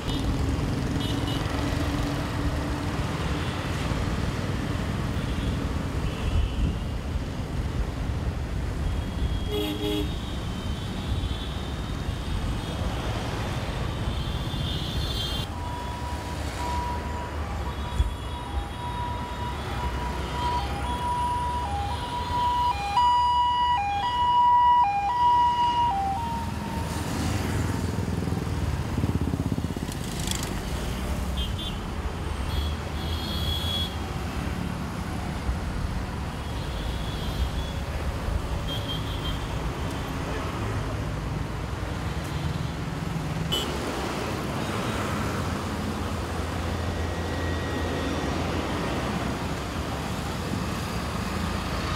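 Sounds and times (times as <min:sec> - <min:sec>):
emergency siren: 0:15.5 - 0:27.1
engine and tyre rumble: 0:26.6 - 0:32.5.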